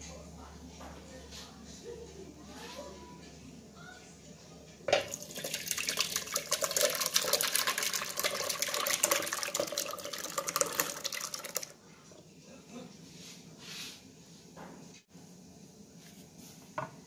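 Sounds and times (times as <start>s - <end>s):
liquid mixture splashing pour: 5.0s - 11.7s.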